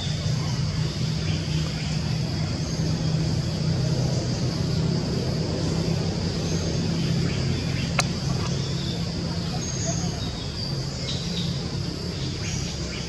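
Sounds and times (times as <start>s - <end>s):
low engine drone: 0.0s - 13.0s.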